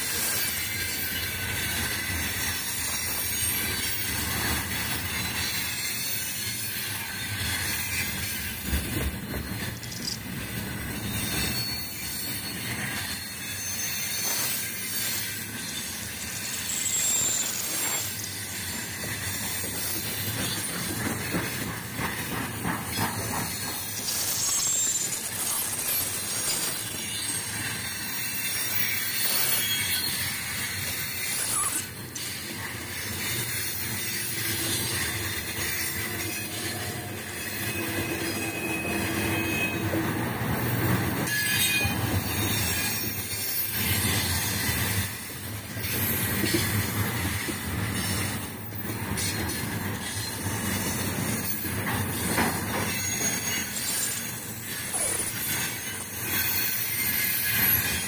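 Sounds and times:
train wheels rolling over rails: 0.0s - 58.0s.

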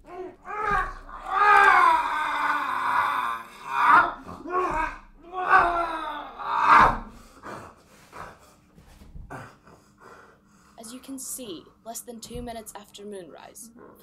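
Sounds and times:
man crying out and groaning: 0.0s - 7.0s.

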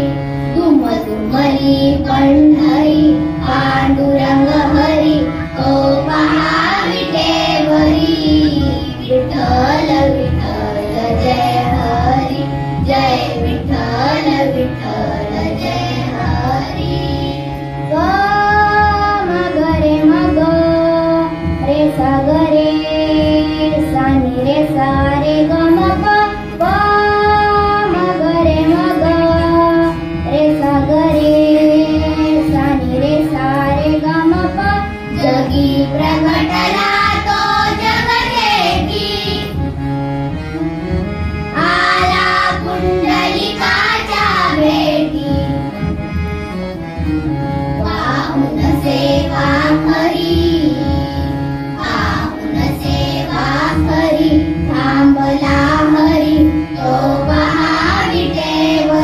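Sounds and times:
girls singing together: 0.0s - 39.6s, 41.6s - 45.6s, 47.8s - 59.0s
harmonium drone: 0.0s - 59.0s.

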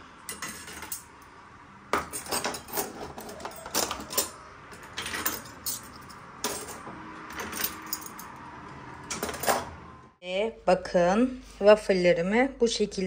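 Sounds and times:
cutlery clinking in dishwasher: 0.3s - 1.1s, 2.0s - 8.2s, 9.1s - 9.7s.

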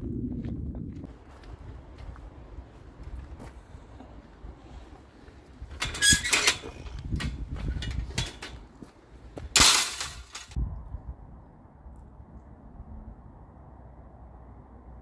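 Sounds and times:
metal gate clanking: 5.7s - 8.6s, 9.5s - 10.6s
metal gate clanging shut: 5.8s - 8.6s, 9.5s - 10.6s.

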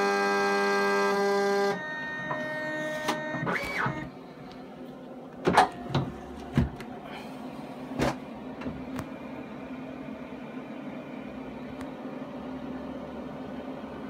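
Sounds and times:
printer humming: 0.0s - 14.0s
mechanical clunks and clicks: 5.4s - 6.9s.

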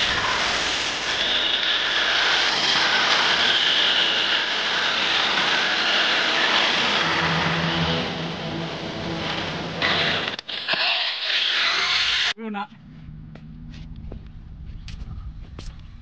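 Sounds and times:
plastic wheels scrubbing concrete: 9.8s - 12.4s
low hum: 12.6s - 16.0s.

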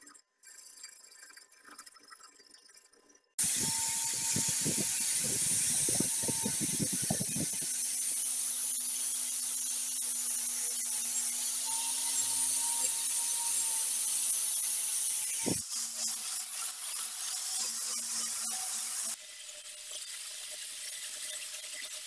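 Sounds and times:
angle grinder sanding steel: 3.4s - 22.0s.

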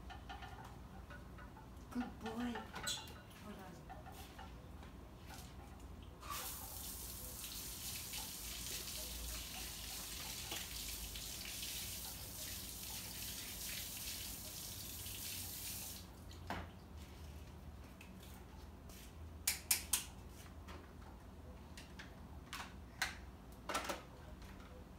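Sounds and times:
garden hose spraying water: 6.2s - 16.2s.

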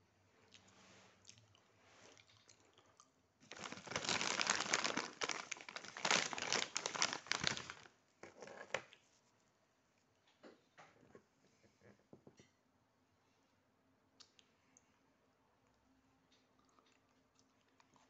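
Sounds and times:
rustling and crinkling: 3.4s - 9.5s.

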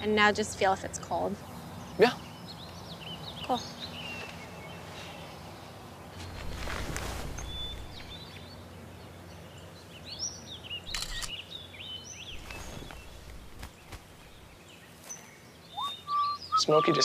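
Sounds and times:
birds chirping: 0.0s - 17.0s
outdoor background noise: 0.0s - 17.0s
fur rustling against clothing: 6.1s - 8.2s, 12.3s - 15.3s.

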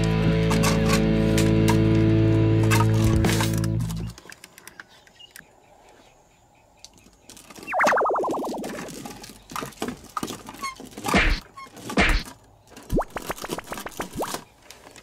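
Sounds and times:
plastic toys clattering: 0.4s - 1.8s, 2.6s - 5.2s, 8.6s - 15.0s.

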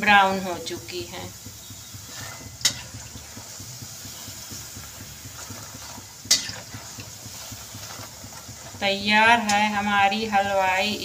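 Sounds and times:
hot oil sizzling: 0.0s - 11.0s
metal spoon clinking on pan: 6.3s - 6.6s.

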